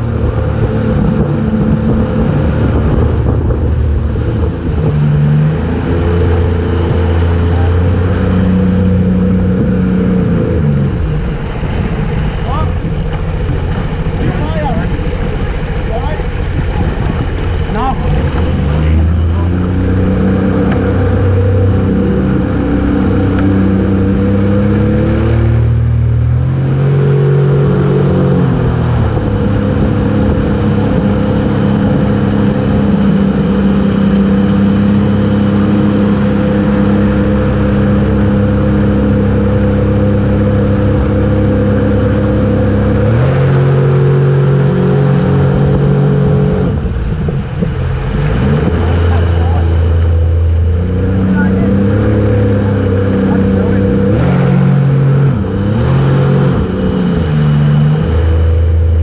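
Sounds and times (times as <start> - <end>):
churning wake rushing: 0.0 - 59.0
motorboat engine running: 0.0 - 59.0
wind: 0.0 - 59.0.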